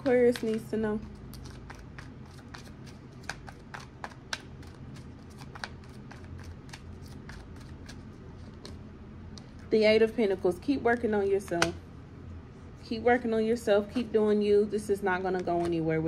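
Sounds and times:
cards being shuffled: 0.0s - 8.8s.

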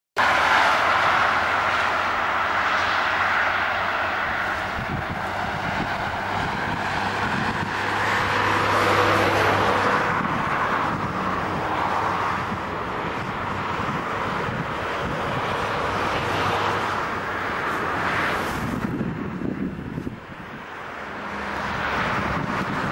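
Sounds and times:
road traffic passing: 0.2s - 22.9s.

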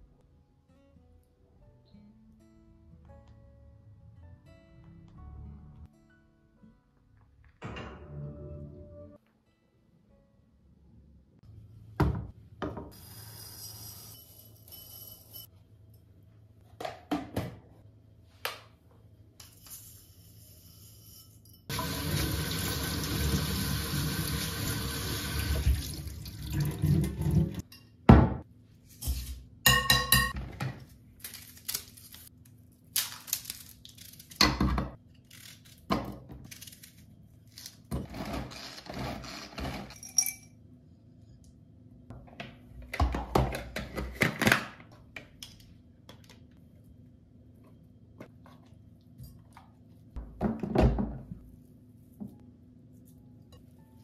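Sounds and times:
tap water running: 21.7s - 27.6s
glass and utensil clinks: 40.0s - 40.6s.

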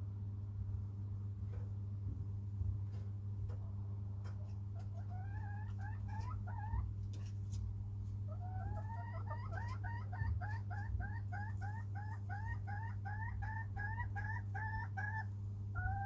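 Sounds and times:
steady low hum: 0.0s - 16.0s
chicken calling: 4.4s - 6.9s, 8.3s - 16.0s.

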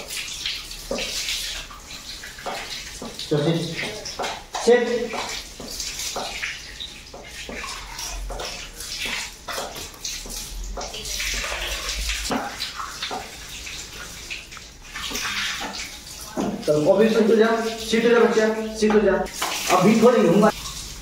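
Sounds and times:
splashes on tiled floor: 0.0s - 21.0s
tap water running and splashing: 0.0s - 21.0s.

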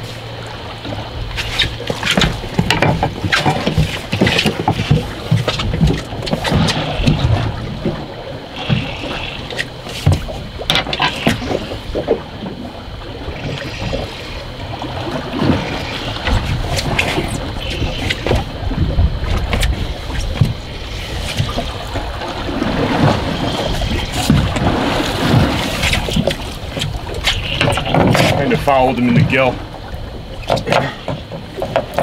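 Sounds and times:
waves splashing against hull: 0.0s - 32.0s
wind on microphone: 1.0s - 31.0s
knocks and clatter on deck: 1.9s - 6.4s.

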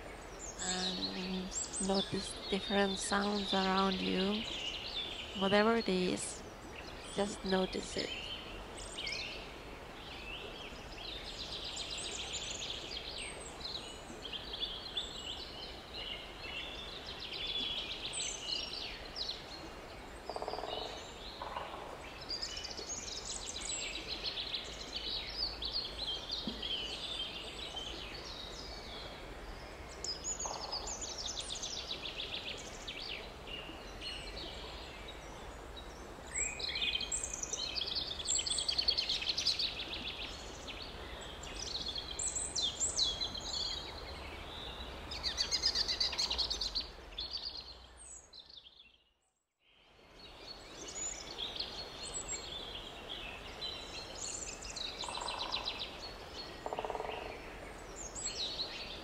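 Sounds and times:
songbirds chirping and trilling: 0.0s - 49.0s, 49.9s - 59.0s
faint outdoor background: 0.0s - 59.0s.

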